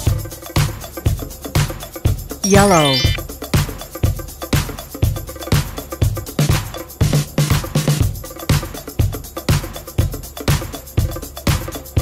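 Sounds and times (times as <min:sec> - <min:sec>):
upbeat dance music: 0:02.4 - 0:03.2.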